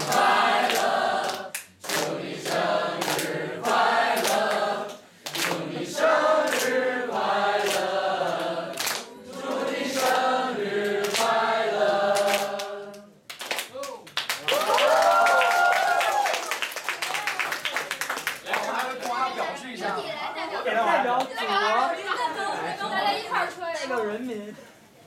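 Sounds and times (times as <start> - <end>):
hand claps: 0.0 - 5.7, 6.4 - 6.8, 7.6 - 10.2, 10.8 - 11.4, 12.1 - 19.2
group singing in unison: 0.0 - 13.2.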